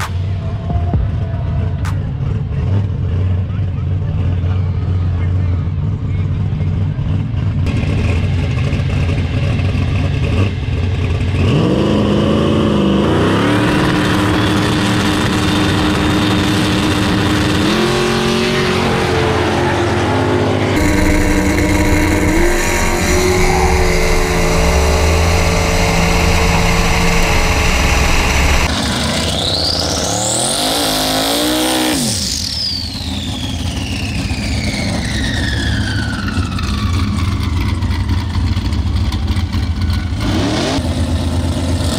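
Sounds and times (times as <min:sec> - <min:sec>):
race car engine revving: 0:00.0 - 0:37.7
race engines running hard: 0:00.0 - 0:41.9
turbo whine: 0:14.0 - 0:30.6, 0:31.9 - 0:37.7.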